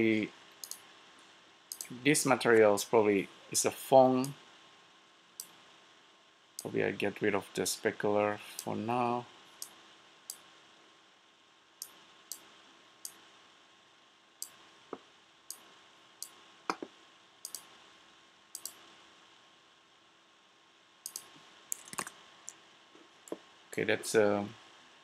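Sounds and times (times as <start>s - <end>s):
faint steady hum: 0.0s - 25.0s
computer mouse clicks: 0.6s - 0.8s, 1.7s - 2.0s, 5.4s - 5.6s, 11.8s - 13.2s, 15.5s - 17.7s, 18.5s - 18.9s, 21.0s - 22.6s.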